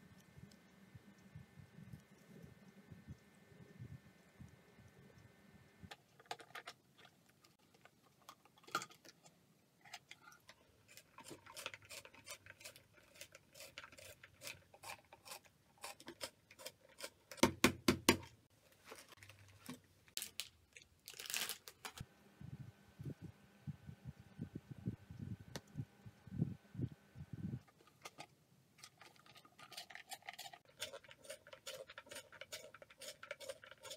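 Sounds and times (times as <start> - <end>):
plastic packaging crinkling: 18.7 - 22.0
pencil sharpener scraping: 29.0 - 33.9.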